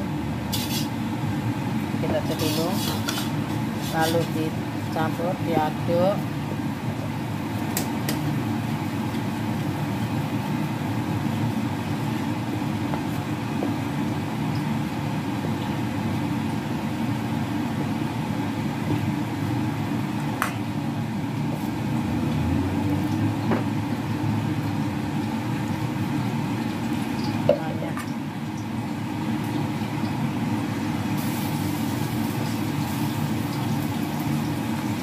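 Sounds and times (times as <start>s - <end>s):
spoon stirring flour: 2.3s - 4.4s.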